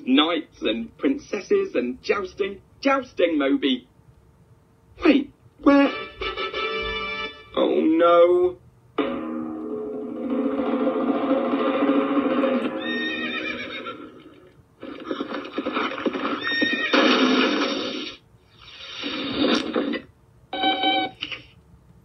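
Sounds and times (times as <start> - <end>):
background music: 5.6 - 7.7
clattering noise: 9.0 - 13.0, 14.1 - 18.2, 19.0 - 20.1
cartoon horse whinnying: 12.7 - 14.5, 16.4 - 18.1.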